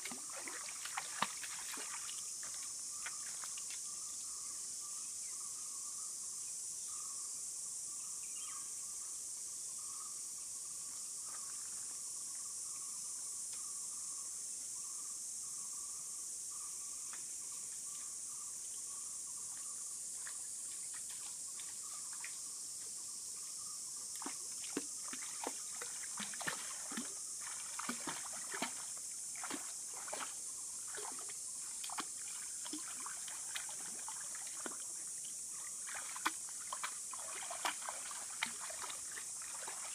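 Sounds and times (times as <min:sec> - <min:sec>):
dog splashing in water: 0:00.0 - 0:02.2, 0:24.2 - 0:30.3, 0:30.9 - 0:34.8, 0:35.8 - 0:39.9
high insect chorus: 0:00.0 - 0:39.9.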